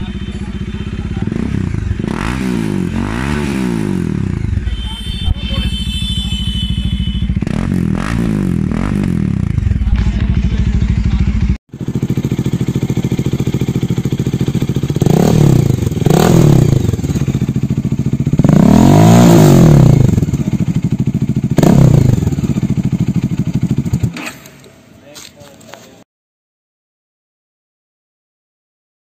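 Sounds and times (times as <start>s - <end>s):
motorcycle engine idling: 0.0s - 3.1s, 4.1s - 7.8s, 8.6s - 24.7s
motorcycle engine revving: 0.0s - 24.5s.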